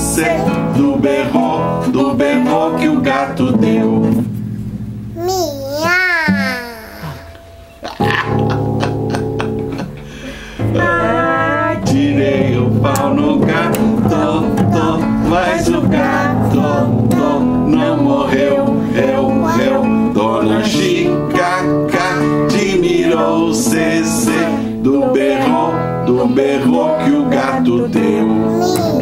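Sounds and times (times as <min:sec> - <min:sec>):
voices singing: 0:00.0 - 0:04.2, 0:10.6 - 0:29.0
acoustic guitar: 0:00.0 - 0:29.0.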